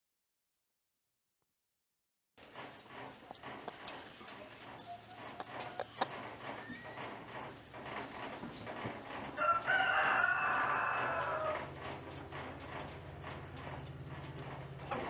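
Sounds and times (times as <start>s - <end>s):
chicken calling: 3.1s - 7.3s, 9.4s - 11.8s.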